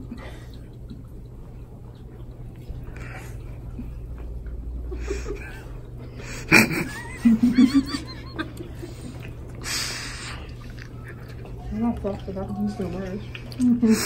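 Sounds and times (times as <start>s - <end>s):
women laughing and squealing: 6.6s - 9.1s.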